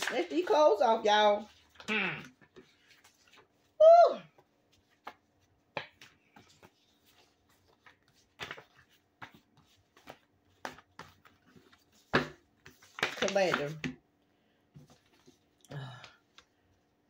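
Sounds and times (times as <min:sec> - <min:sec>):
cards flicking and slapping: 0:04.9 - 0:07.0, 0:07.6 - 0:13.8.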